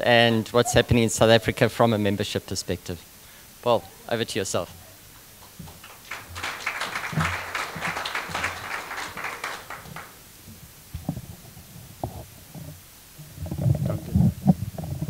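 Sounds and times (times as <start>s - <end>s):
audience applauding: 5.4s - 10.2s.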